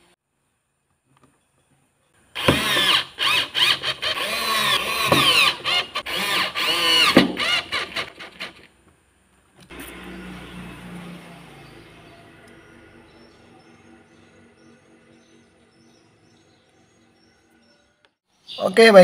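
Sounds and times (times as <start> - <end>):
power drill whining: 2.4 - 8.7.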